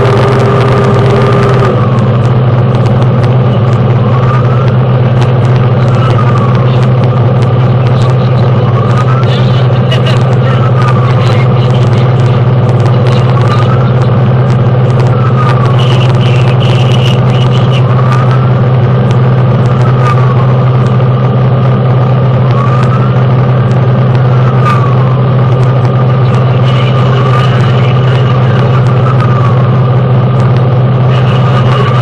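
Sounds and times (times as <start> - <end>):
wailing siren: 0.0 - 9.2
engine and road drone: 0.0 - 32.0.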